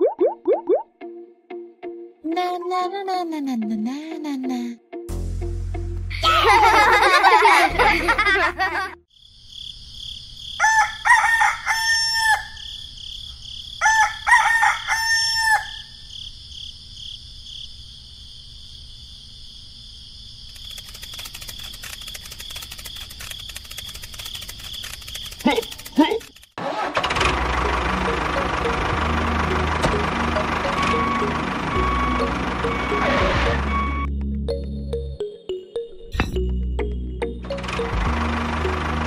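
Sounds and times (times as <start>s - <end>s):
rooster crowing: 10.5s - 12.9s, 13.7s - 16.1s
high insect-like trill: 20.4s - 26.6s
faint rapid ticking: 20.5s - 26.6s.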